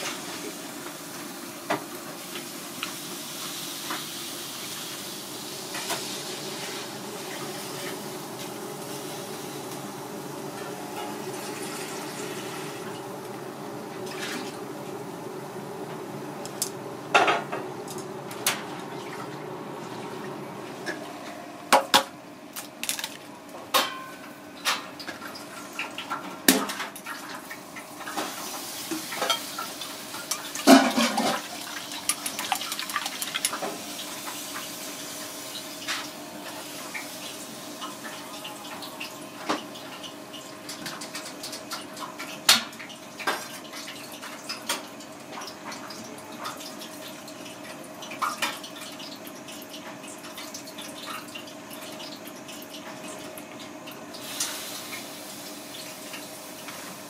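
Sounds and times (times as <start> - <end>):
broth bubbling and hissing: 2.2 - 21.0.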